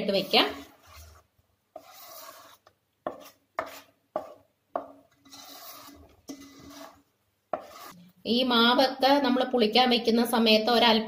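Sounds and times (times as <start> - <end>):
spoon knocking and scraping bowl: 1.8 - 8.0.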